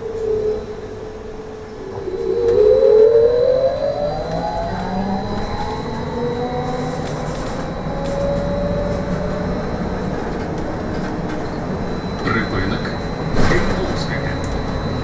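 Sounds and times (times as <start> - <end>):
low road rumble: 0.0 - 15.0
trolleybus electric drive whine: 0.0 - 15.0
constant high thin tone: 11.4 - 15.0.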